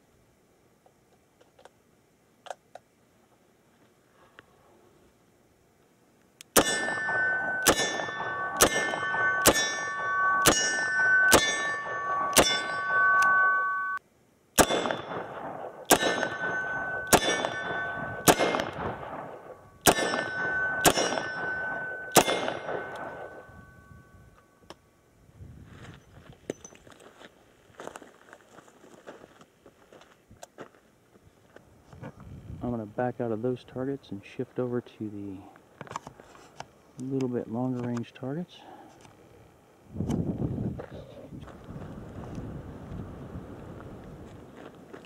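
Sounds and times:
steel targets ringing: 6.6 - 14.0, 14.6 - 24.7.

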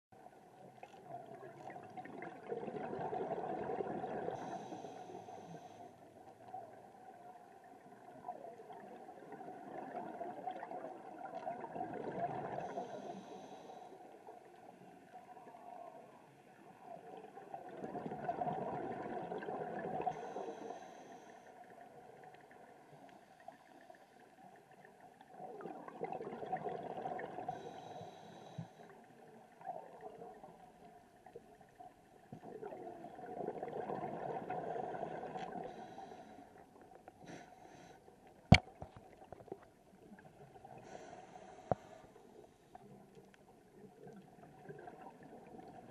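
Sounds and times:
exhaled bubbles gurgling: 0.8 - 5.7, 6.5 - 13.5, 16.5 - 20.7, 24.6 - 28.0, 29.4 - 36.8, 43.6 - 45.9.

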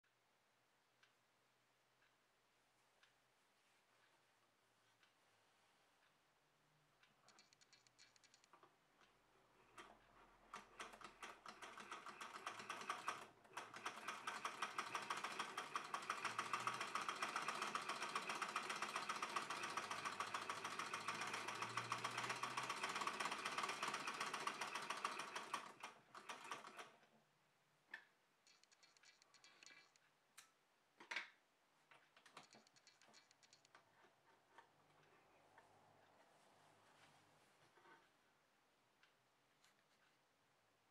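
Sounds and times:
toy sewing machine clatter: 10.5 - 26.9.

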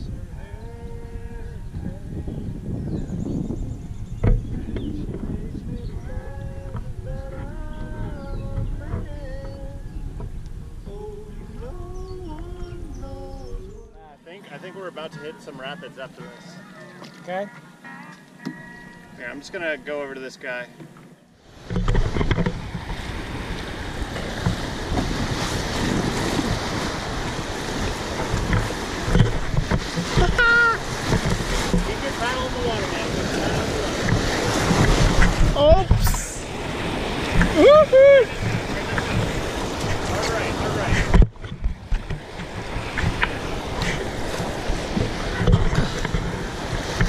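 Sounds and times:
wind buffeting microphone: 0.0 - 14.1, 21.4 - 47.0
canoe paddling: 0.0 - 47.0
whitewater rushing and splashing: 21.4 - 47.0.

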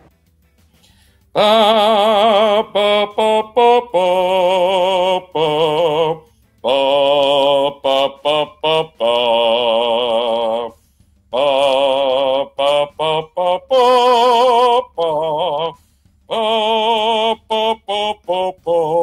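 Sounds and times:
man singing operatically: 1.4 - 19.0.

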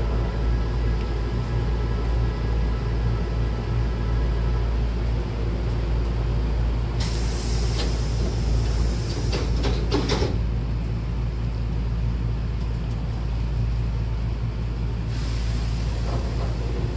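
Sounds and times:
low hum of stopped train: 0.0 - 16.9
compressed air hiss from train doors: 7.0 - 10.4, 15.0 - 16.9
sliding doors knocking shut: 9.1 - 10.4.

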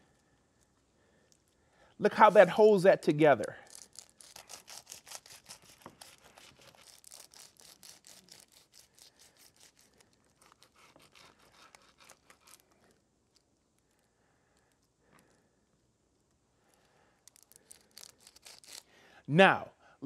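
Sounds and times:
bread knife sawing through foil: 3.7 - 12.7, 17.9 - 18.9.

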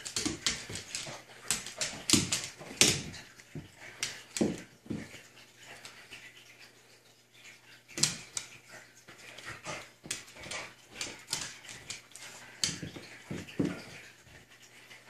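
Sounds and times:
claws and toy knocking on wood floor: 0.0 - 5.2, 12.6 - 14.0.

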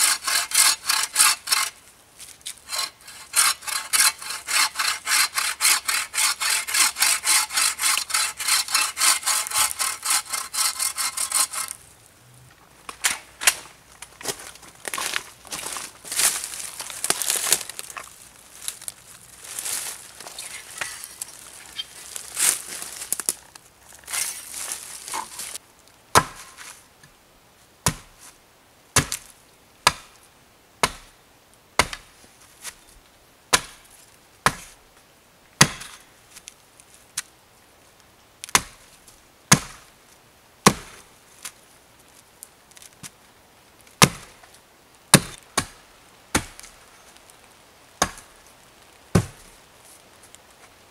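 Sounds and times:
rustling in dry leaves: 0.0 - 26.9, 41.0 - 50.9
hatchet chopping wood: 26.1 - 26.6, 27.8 - 28.1, 29.0 - 30.2, 30.8 - 31.1, 31.8 - 32.1, 33.5 - 33.8, 34.4 - 34.7, 35.6 - 36.0, 38.5 - 38.8, 39.5 - 39.8, 40.6 - 41.0, 44.0 - 44.3, 45.1 - 46.7, 48.0 - 48.3, 49.1 - 49.4.

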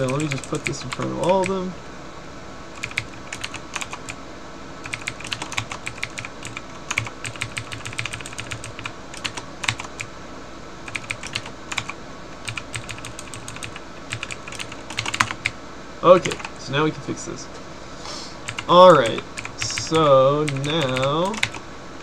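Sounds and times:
computer keyboard typing: 0.0 - 1.6, 2.8 - 4.2, 4.8 - 10.1, 10.9 - 15.6, 16.2 - 16.6, 18.4 - 21.6.

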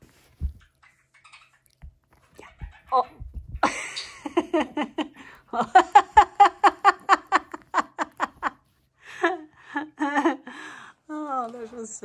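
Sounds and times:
woman laughing: 3.6 - 10.5.

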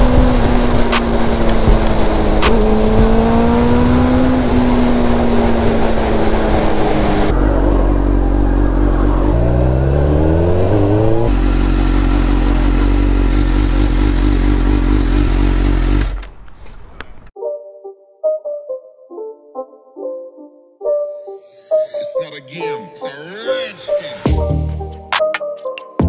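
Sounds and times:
motorcycle engine at speed: 0.0 - 17.3.

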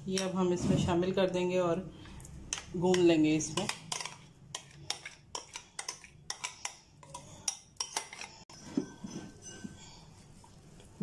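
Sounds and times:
metal spoon scraping steel bowl: 2.5 - 10.4.

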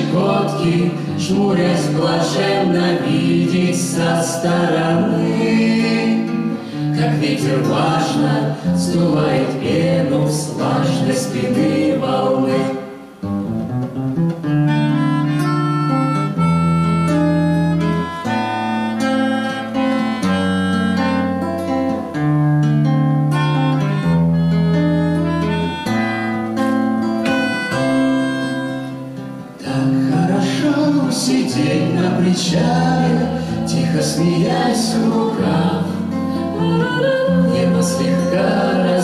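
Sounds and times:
voices singing: 0.0 - 13.2, 29.6 - 39.0
acoustic guitar accompaniment: 0.0 - 39.0
flute melody: 14.4 - 31.2, 34.2 - 39.0.

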